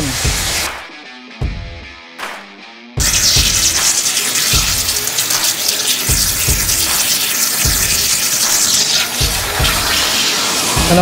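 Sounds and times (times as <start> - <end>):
music with thumping beat: 0.0 - 11.0
water splashing into tank: 3.0 - 10.8
waterjet hissing: 3.0 - 11.0.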